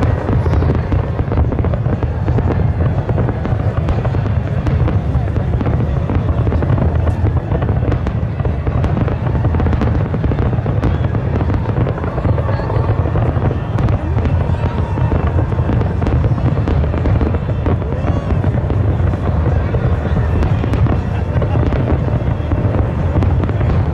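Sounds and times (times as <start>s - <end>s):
fireworks bursting: 0.0s - 23.9s.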